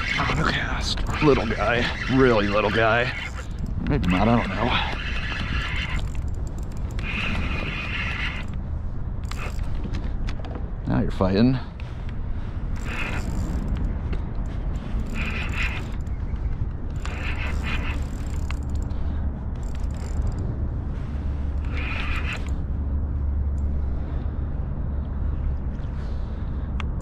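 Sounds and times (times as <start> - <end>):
fishing reel ratcheting: 0.0 - 8.6, 9.2 - 9.8, 12.8 - 20.5, 21.4 - 22.6
wind and water rumble: 0.0 - 27.0.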